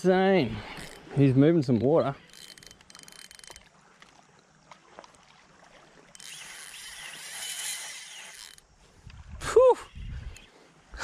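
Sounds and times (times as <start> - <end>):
reel drag buzzing: 0.2 - 10.5
spinning reel cranking: 0.6 - 1.1, 1.8 - 3.7, 6.1 - 8.7
faint reel clicks: 0.7 - 1.1, 1.7 - 4.2, 6.1 - 9.2.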